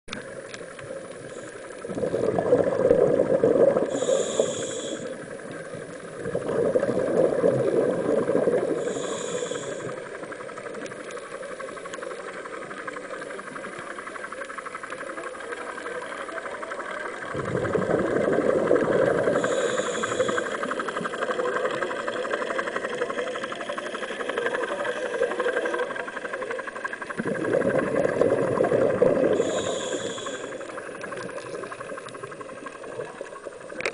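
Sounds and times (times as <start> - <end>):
exhaust bubbles rushing underwater: 0.1 - 14.4, 15.6 - 33.9
underwater fizz: 0.1 - 33.9
regulator hiss: 3.8 - 6.2, 8.6 - 12.6, 18.9 - 25.2, 29.1 - 33.2.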